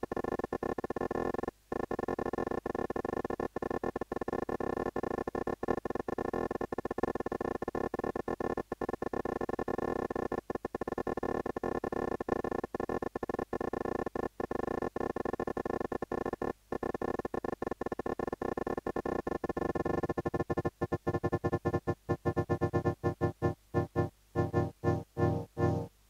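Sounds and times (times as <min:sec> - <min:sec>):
choppy granular synth chords: 0:20.3 - 0:25.9
deep low synth note: 0:21.1 - 0:25.9.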